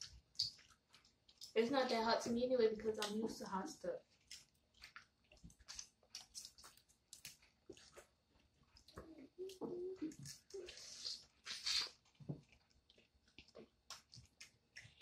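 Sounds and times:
chewing and lip smacks: 0:00.0 - 0:01.6, 0:04.0 - 0:15.0
person humming: 0:09.1 - 0:10.9.

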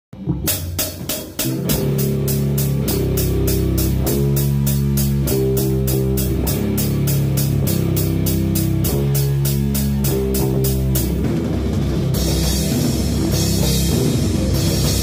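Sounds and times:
heavy guitars and bass: 0:00.1 - 0:15.0
drum kit with cymbal hits: 0:00.2 - 0:15.0.

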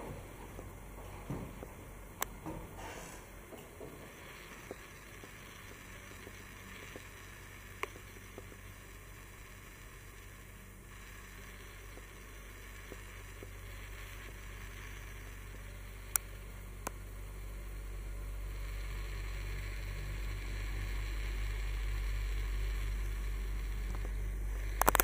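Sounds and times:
low steady hum: 0:00.0 - 0:25.0
sharp click: 0:24.8 - 0:25.0.

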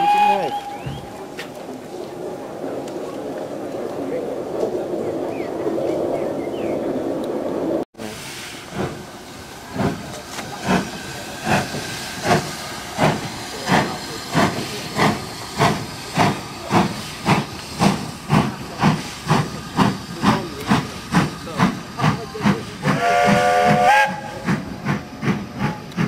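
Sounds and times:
steam locomotive exhaust beats: 0:00.0 - 0:05.4, 0:08.0 - 0:26.0
steam hissing: 0:08.0 - 0:26.0.

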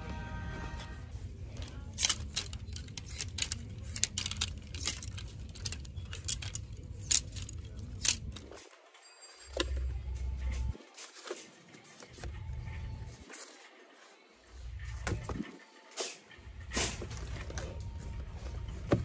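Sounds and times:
hangers clacking on metal rack: 0:01.6 - 0:08.7.

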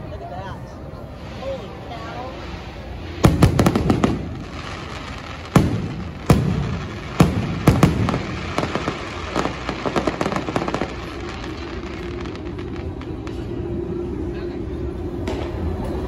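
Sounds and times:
fireworks booming: 0:02.9 - 0:13.6
fireworks crackling pops: 0:03.0 - 0:14.0.

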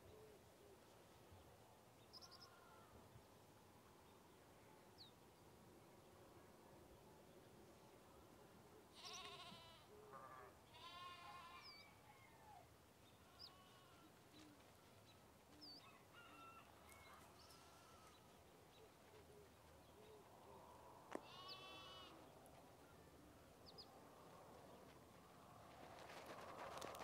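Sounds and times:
farm animals bleating: 0:02.4 - 0:02.9, 0:08.9 - 0:11.9, 0:13.2 - 0:15.0, 0:17.2 - 0:18.2, 0:21.2 - 0:22.3.

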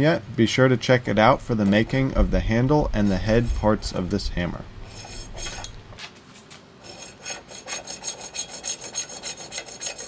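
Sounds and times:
hacksaw cutting metal bar: 0:06.9 - 0:10.0.

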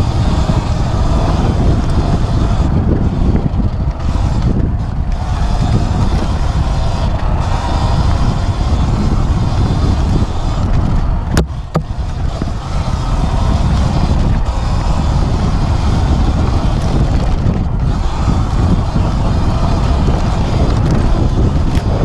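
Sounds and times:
low wind rumble on microphone: 0:00.0 - 0:22.0.

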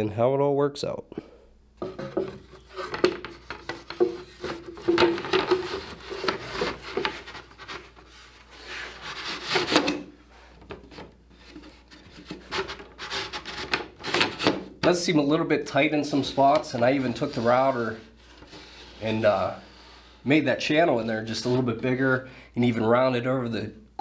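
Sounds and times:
wooden slats scraping and clicking: 0:01.8 - 0:08.1, 0:08.7 - 0:10.1
wood rubbing on wood: 0:01.8 - 0:10.0, 0:16.0 - 0:20.2.

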